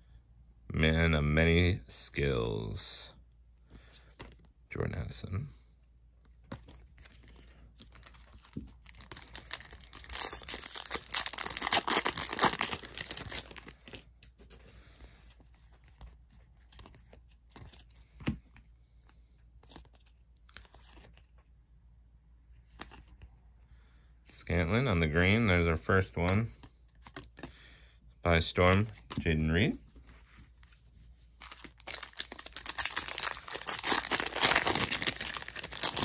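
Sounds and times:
foil wrapper crinkling and tearing: 7.1 - 14.1, 31.4 - 36.0.

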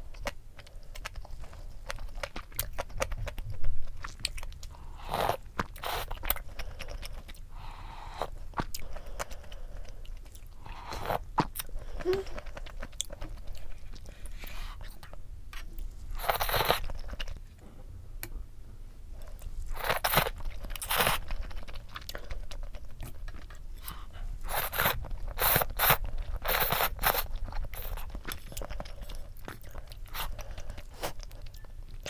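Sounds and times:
wet chewing: 0.1 - 7.5.

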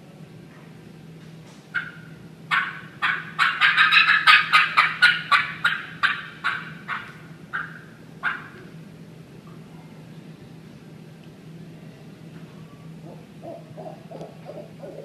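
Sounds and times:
turkey cackle on a mouth call: 1.8 - 8.6.

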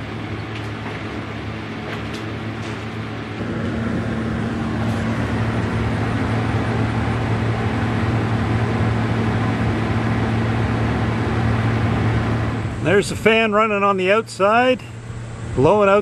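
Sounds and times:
exhaust fan humming: 0.0 - 16.0
rush of air: 3.0 - 8.4.

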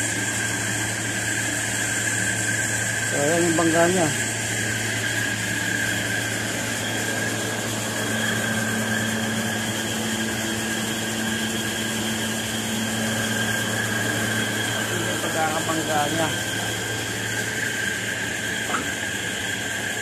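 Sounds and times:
machinery humming: 0.0 - 20.0
high whining tones: 1.4 - 19.9.

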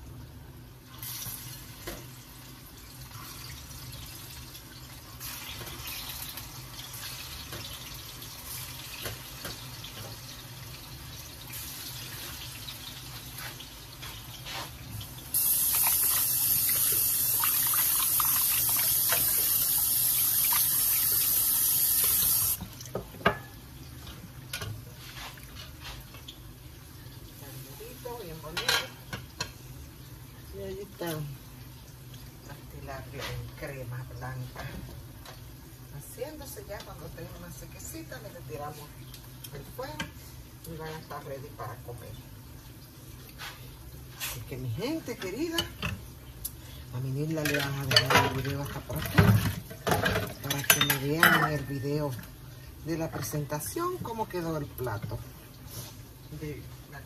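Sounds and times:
kitchen tap running: 0.9 - 32.8.

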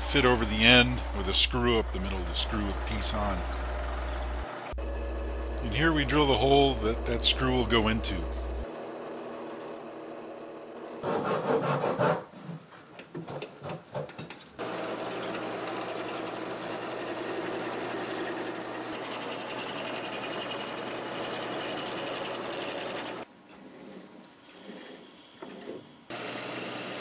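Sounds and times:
drill press boring into wood: 0.0 - 11.0, 14.6 - 23.2, 26.1 - 27.0
wood lathe running: 0.0 - 11.0, 14.6 - 23.3, 26.1 - 27.0
turning tool cutting wood: 0.0 - 12.2, 14.6 - 23.3, 26.1 - 27.0.

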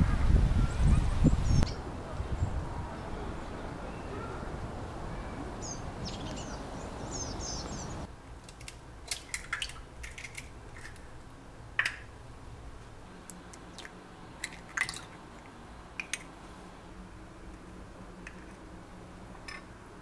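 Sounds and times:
outdoor ambience: 0.0 - 20.0
small birds chirping: 0.5 - 8.1.

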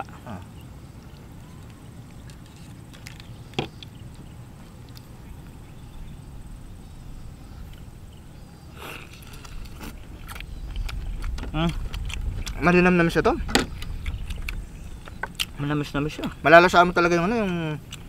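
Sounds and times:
wind rumble on microphone: 0.6 - 18.0
sharp crack: 8.8 - 16.4
prawn shells crackling: 8.8 - 16.5.

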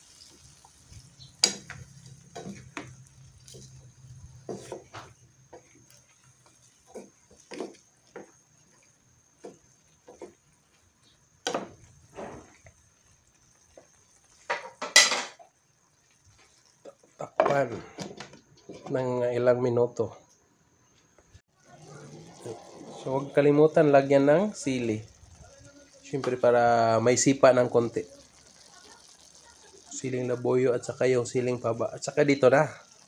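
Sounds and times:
utensils scraping a frying pan: 0.1 - 10.5.

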